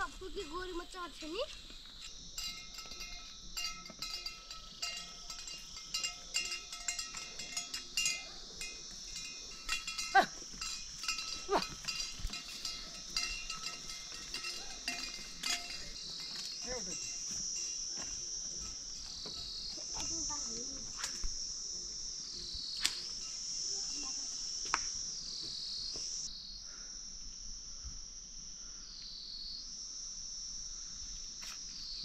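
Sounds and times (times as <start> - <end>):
insects droning: 0.0 - 32.0
livestock bells clanking: 2.3 - 19.8.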